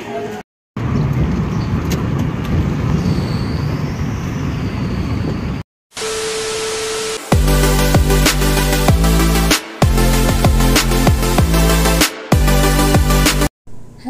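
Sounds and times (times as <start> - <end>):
vehicle engine and road rumble: 0.8 - 3.3
electronic music with heavy beat: 7.2 - 13.5.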